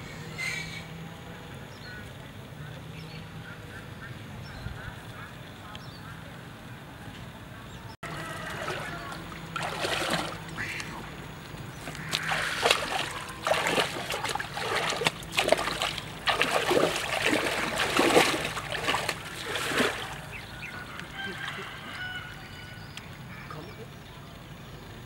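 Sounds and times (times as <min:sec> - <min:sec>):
river water splashing: 0:08.0 - 0:22.5.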